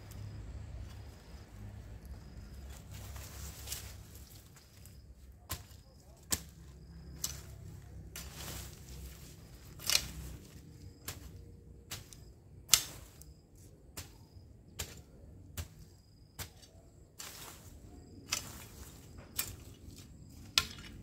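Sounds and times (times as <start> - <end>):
hoe chopping into soil: 4.8 - 7.5, 8.1 - 13.3, 14.0 - 17.7, 18.3 - 21.0.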